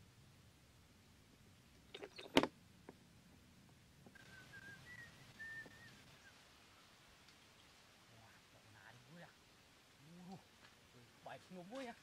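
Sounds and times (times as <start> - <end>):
faint wavering whistle: 4.1 - 6.4.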